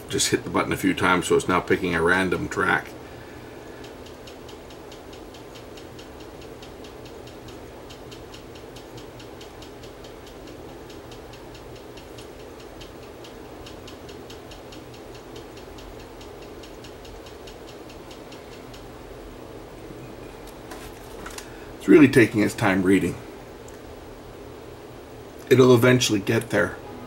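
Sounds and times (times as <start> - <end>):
steady low hum: 0.0 - 27.0
cd player mechanism ticking: 3.6 - 19.4.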